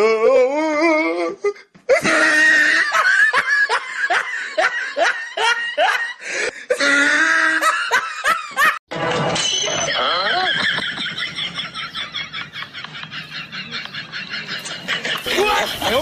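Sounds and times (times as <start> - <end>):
person laughing hard: 1.9 - 8.8.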